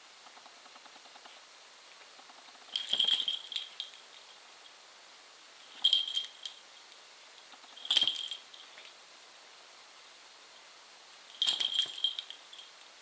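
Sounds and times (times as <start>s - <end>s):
dog collar jingling: 2.7s - 4.0s, 5.8s - 6.6s, 7.7s - 8.6s, 11.4s - 12.7s.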